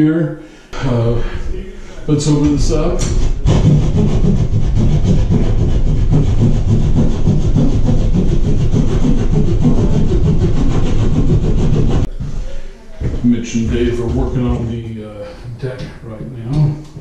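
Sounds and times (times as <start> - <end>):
hand saw rasping through drywall: 2.9 - 12.1.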